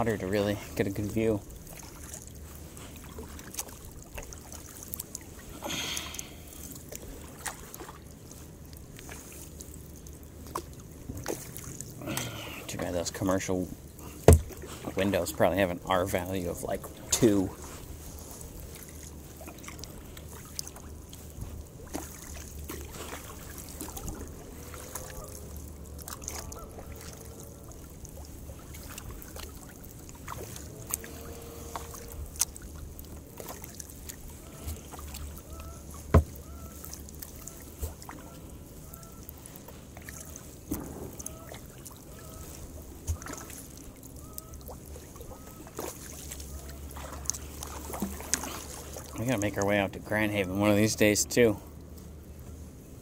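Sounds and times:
paddle splashing in water: 0.0s - 51.2s
sharp knocks: 14.3s - 14.5s.

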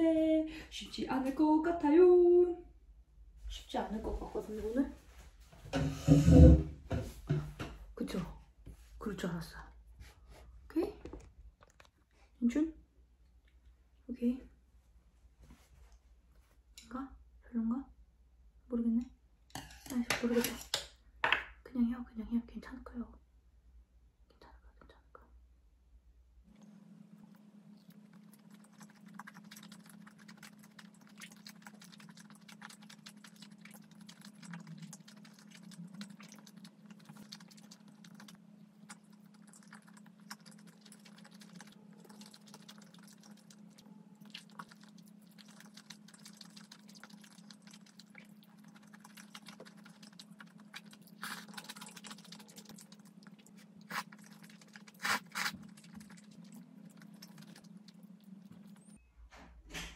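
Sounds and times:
soft chewing: 26.5s - 59.0s
slurping noodles: 27.8s - 58.9s.

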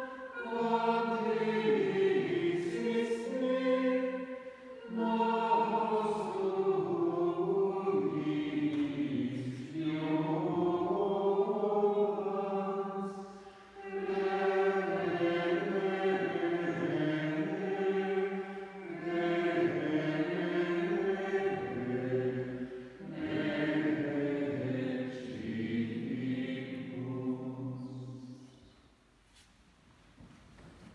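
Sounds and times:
singers breathing: 4.3s - 4.8s, 13.3s - 13.8s.

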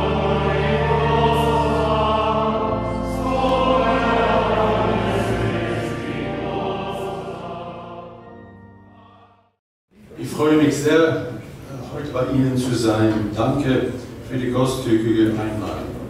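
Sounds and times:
choir singing sacred music: 0.0s - 9.6s.

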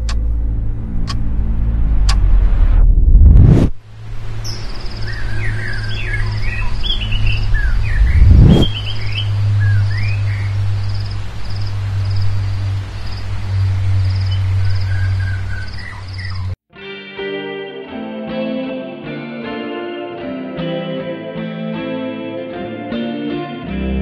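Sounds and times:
steady low rumble: 0.0s - 16.6s
insect chirping steadily: 4.0s - 8.1s, 8.8s - 16.6s
birds chirping: 4.3s - 16.6s.

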